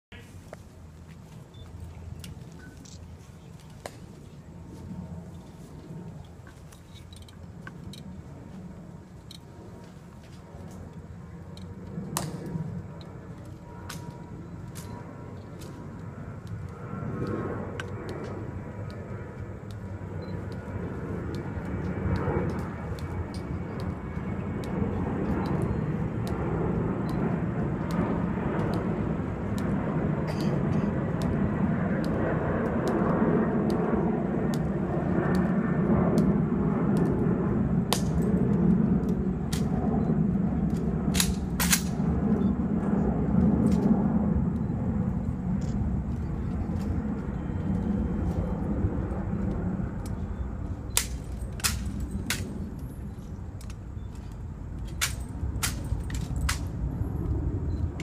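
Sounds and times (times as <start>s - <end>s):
jet aircraft rumble: 0.1s - 58.0s
sharp clicks: 27.0s - 29.8s.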